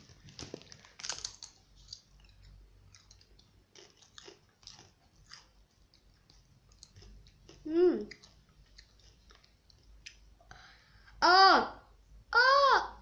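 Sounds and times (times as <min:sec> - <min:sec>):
chewing crunchy chips: 0:00.2 - 0:10.3.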